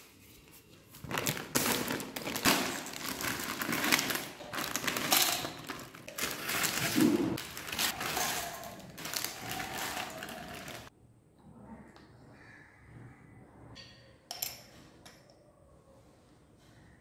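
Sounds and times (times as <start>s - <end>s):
foil chip packets crinkling: 1.0s - 10.9s
crisps tumbling into steel bowl: 1.1s - 10.9s.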